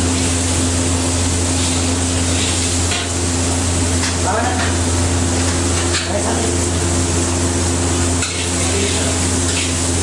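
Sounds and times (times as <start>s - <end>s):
gas burner hiss and rumble: 0.0s - 10.0s
metal spatula scraping wok: 8.2s - 9.9s.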